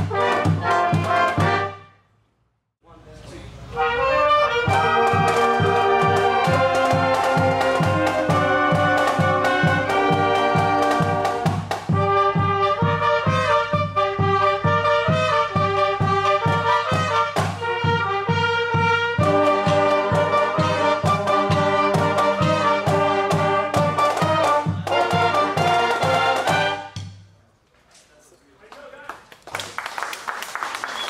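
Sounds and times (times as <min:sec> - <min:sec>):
steady drum beat: 0:00.0 - 0:01.8, 0:04.3 - 0:27.2
school band playing a tune: 0:00.0 - 0:02.0, 0:03.0 - 0:27.2.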